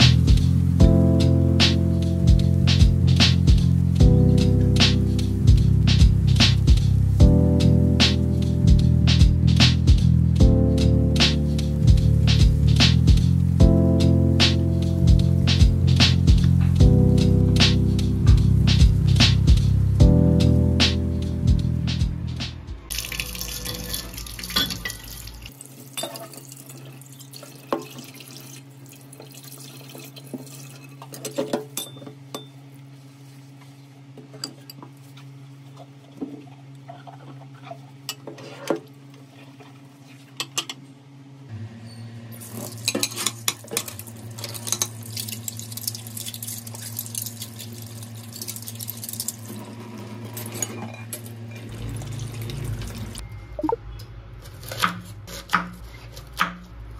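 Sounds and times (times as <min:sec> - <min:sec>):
tap water running: 0:22.9 - 0:31.3, 0:42.4 - 0:50.6, 0:51.6 - 0:53.2
dishes clinking in metal sink: 0:23.5 - 0:25.2, 0:26.0 - 0:26.6, 0:30.7 - 0:32.6, 0:42.6 - 0:44.9.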